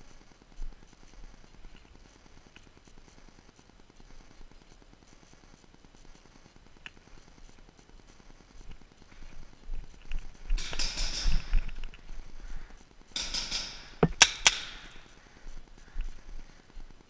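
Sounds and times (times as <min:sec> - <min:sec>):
paintball markers firing: 0:10.5 - 0:11.8, 0:13.1 - 0:15.2.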